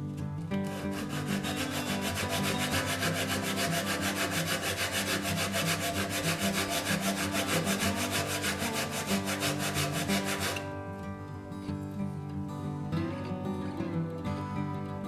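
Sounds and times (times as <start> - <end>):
wood scratching on sandpaper: 0.6 - 10.7.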